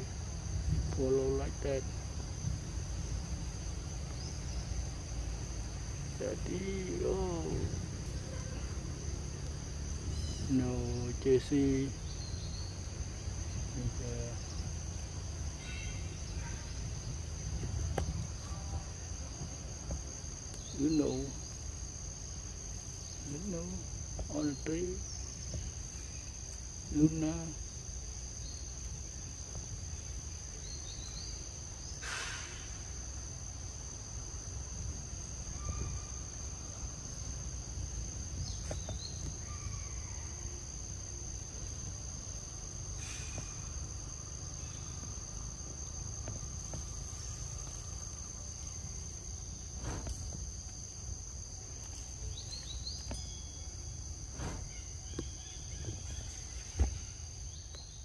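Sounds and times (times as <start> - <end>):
high-pitched insect drone: 0.0 - 58.0
faint chirps: 10.0 - 12.9
short thump: 49.8 - 50.4, 54.3 - 56.1, 56.7 - 57.0.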